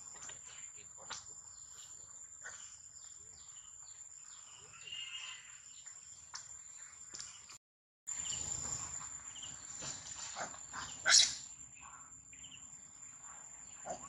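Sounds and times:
baby monkey shrieking: 11.0s - 11.4s.

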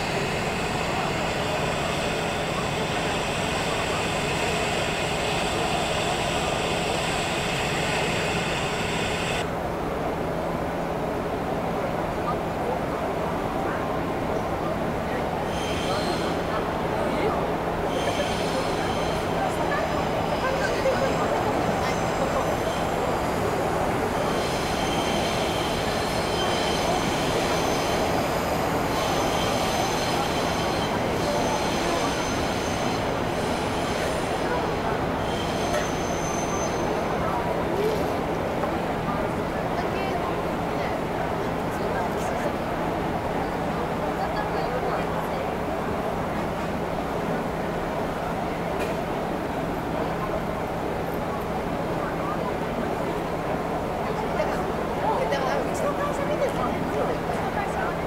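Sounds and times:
city rumbling noise: 0.0s - 58.0s
wheel squeal: 15.5s - 16.5s, 24.2s - 38.0s.

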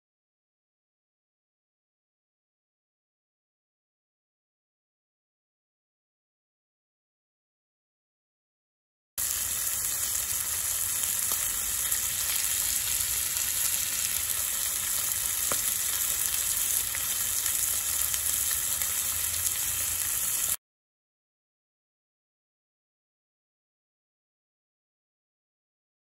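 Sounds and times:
ribs sizzling in oil: 9.2s - 20.6s.

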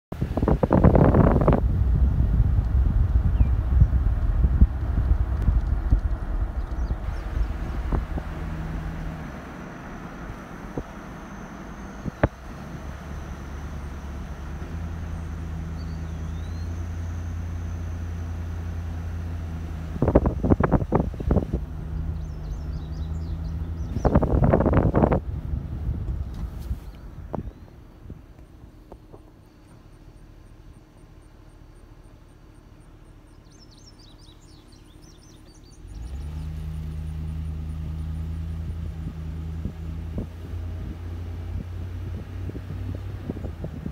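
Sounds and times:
car engine and road noise: 0.1s - 43.9s
bird chirping: 3.3s - 4.0s, 6.0s - 8.6s, 14.9s - 18.3s, 21.8s - 24.3s, 27.0s - 28.1s, 29.4s - 36.6s.

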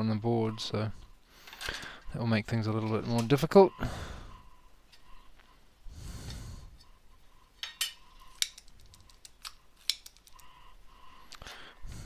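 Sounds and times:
tools clicking and tapping: 7.6s - 10.5s.

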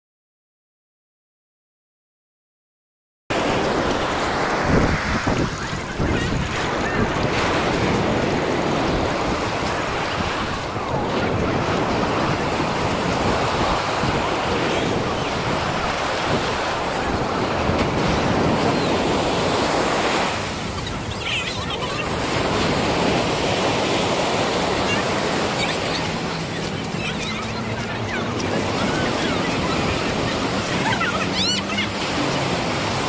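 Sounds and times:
ocean surf breaking on beach: 3.3s - 33.0s
wind buffeting microphone: 3.4s - 33.0s.

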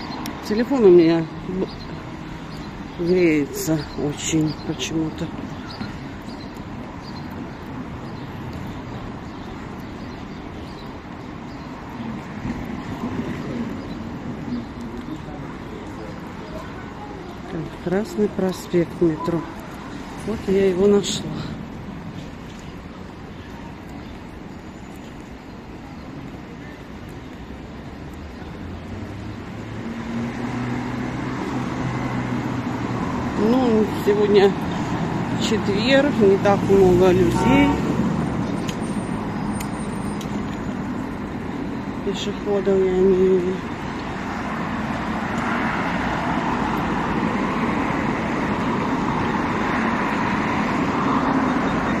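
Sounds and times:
road noise: 0.0s - 52.0s
traffic rumble: 0.0s - 52.0s
vehicle engine hum: 26.1s - 52.0s.

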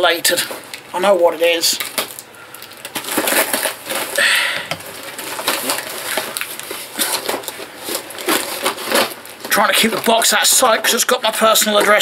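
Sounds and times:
cardboard crackling and crunching: 0.0s - 12.0s
packaging tearing: 1.7s - 10.9s.

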